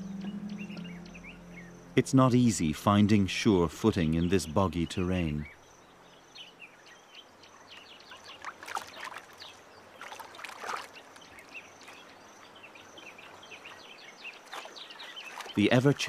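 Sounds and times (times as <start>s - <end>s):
splashing footfalls in water: 8.1s - 12.1s, 14.2s - 16.0s.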